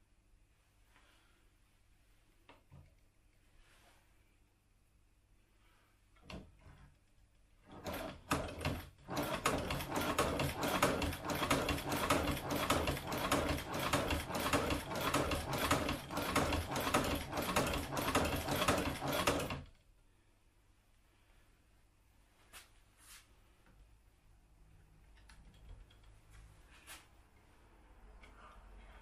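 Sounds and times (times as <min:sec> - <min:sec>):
hand-cranked sewing machine clattering: 0:07.7 - 0:19.7.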